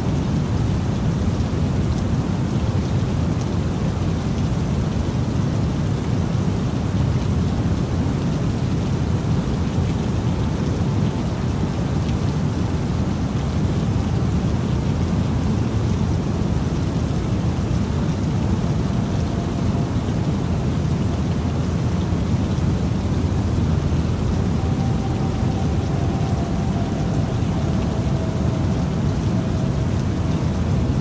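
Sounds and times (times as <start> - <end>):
rain-like noise: 0.0 - 31.0
deep rumble: 15.4 - 31.0.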